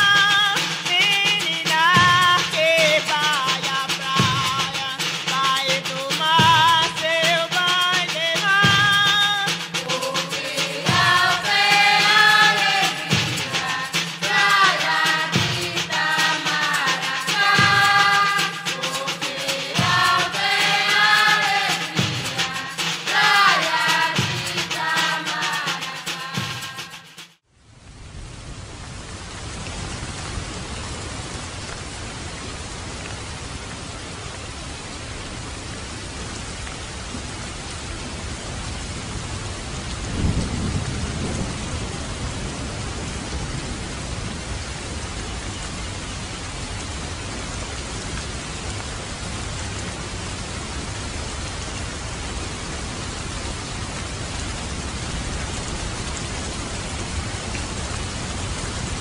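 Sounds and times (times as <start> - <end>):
heavy rain on water: 0.0 - 59.0
low roll of thunder: 40.0 - 44.4.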